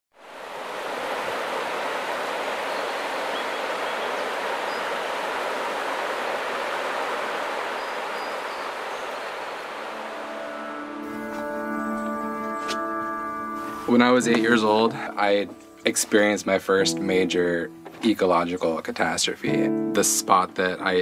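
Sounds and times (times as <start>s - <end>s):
stream water rushing: 0.2s - 12.6s.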